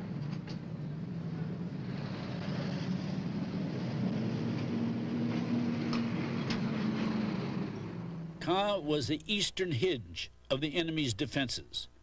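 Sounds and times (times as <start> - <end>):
tracked vehicle engine running: 0.0 - 8.4.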